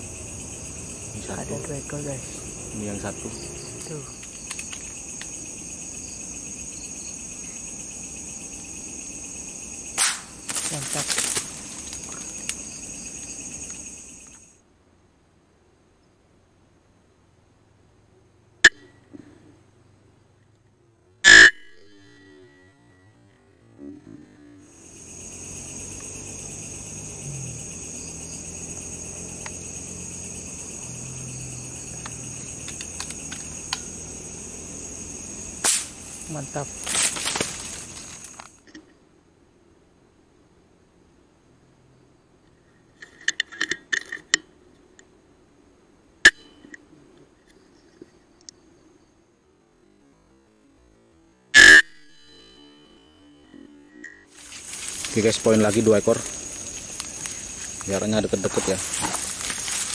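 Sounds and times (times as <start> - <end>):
insects chirring: 0.0 - 59.9
insects trilling: 0.0 - 59.9
faint clicks: 4.2 - 5.4.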